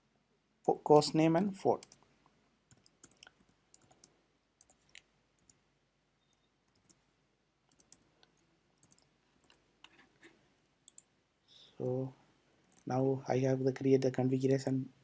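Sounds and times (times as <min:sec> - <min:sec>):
typing on computer keyboard: 0:02.7 - 0:05.6, 0:06.7 - 0:07.0, 0:07.7 - 0:08.0, 0:08.8 - 0:10.0.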